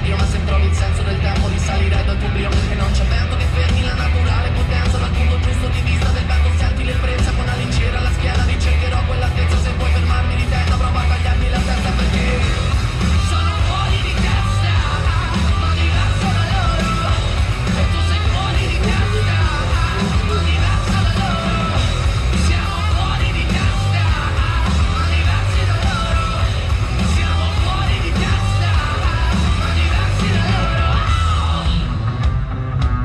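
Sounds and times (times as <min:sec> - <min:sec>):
loud rock music: 0:00.0 - 0:33.0
shouted sung vocals: 0:06.1 - 0:31.9.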